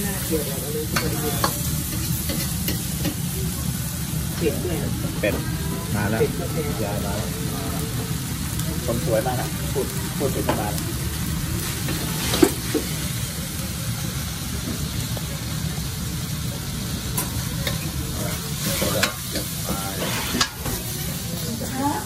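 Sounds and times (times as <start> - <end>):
food sizzling: 0.0 - 22.0
ladle scraping a wok: 11.6 - 13.1, 17.2 - 21.8
ladle clanking on wok: 17.2 - 20.9.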